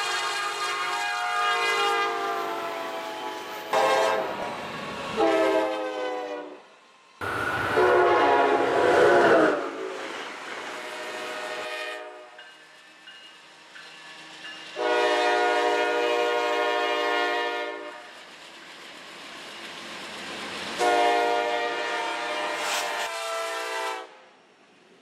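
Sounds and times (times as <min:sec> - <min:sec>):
locomotive horn blasts: 0:00.0 - 0:04.4, 0:05.2 - 0:06.6, 0:07.7 - 0:09.9, 0:10.8 - 0:12.4, 0:14.8 - 0:18.1, 0:20.8 - 0:24.2
rumble of passing train: 0:00.0 - 0:25.0.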